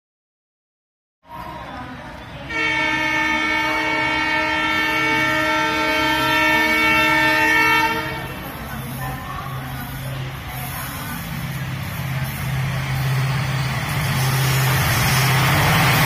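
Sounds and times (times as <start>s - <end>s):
low train rumble: 1.2s - 16.0s
locomotive air horn blast: 2.5s - 8.4s.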